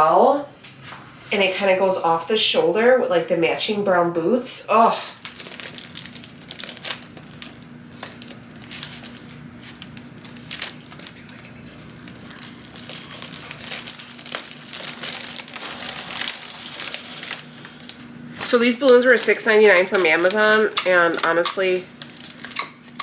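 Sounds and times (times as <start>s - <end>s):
steady low hum: 0.0s - 23.0s
crinkly material crackling: 5.0s - 23.0s.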